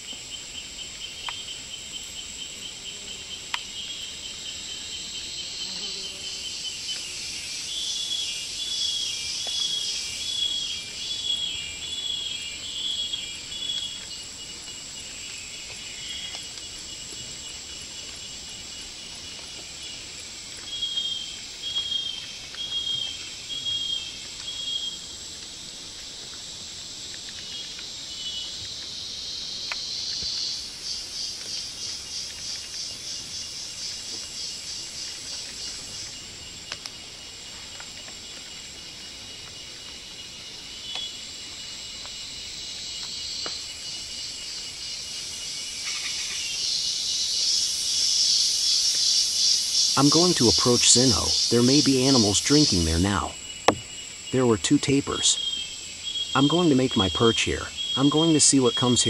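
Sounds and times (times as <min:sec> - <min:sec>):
high-pitched insect drone: 0:00.0 - 0:17.7, 0:40.2 - 0:59.0
insect chirps: 0:00.0 - 0:59.0
pulsing insect buzz: 0:00.6 - 0:14.8, 0:44.6 - 0:59.0.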